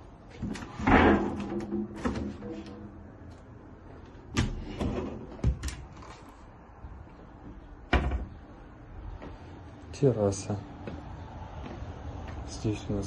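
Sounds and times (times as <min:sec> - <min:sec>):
cupboard doors opening and shutting: 0:00.4 - 0:02.9, 0:04.3 - 0:06.3, 0:07.9 - 0:08.4
fridge door opening and shutting: 0:00.4 - 0:02.9, 0:04.3 - 0:06.3, 0:07.9 - 0:08.4.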